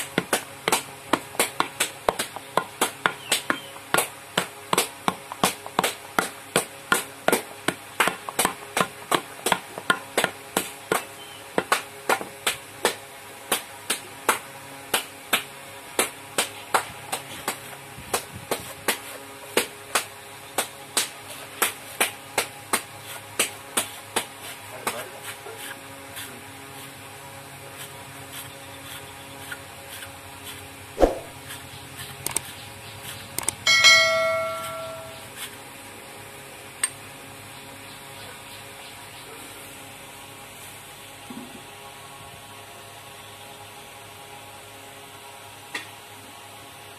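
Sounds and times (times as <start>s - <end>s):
brief ringing tone: 33.7s - 35.3s.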